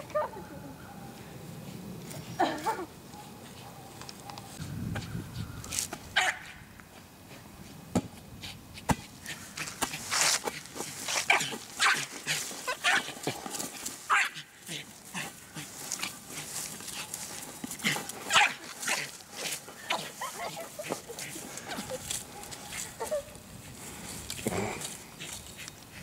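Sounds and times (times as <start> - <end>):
dog barking and yipping: 6.2 - 6.5, 11.3 - 13.2, 14.1 - 14.8, 17.8 - 23.2.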